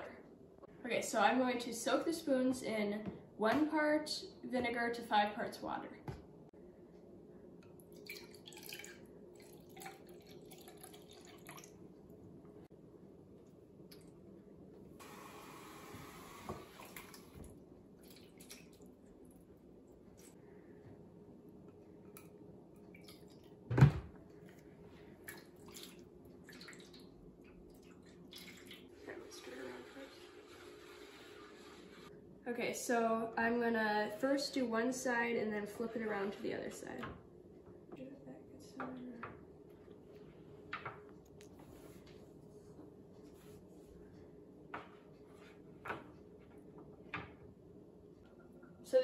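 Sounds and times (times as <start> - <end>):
liquid pouring into a cup: 7.9 - 11.8
liquid splashing and trickling: 7.9 - 11.9, 18.0 - 19.4, 22.8 - 23.7, 25.2 - 29.6.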